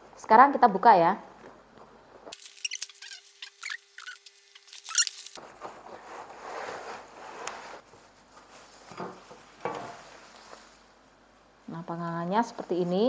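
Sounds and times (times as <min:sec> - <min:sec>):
bubble wrap rustling: 0:02.3 - 0:07.1.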